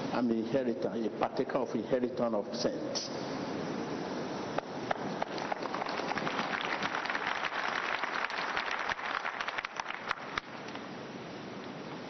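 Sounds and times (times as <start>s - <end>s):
people applauding: 4.9s - 10.5s.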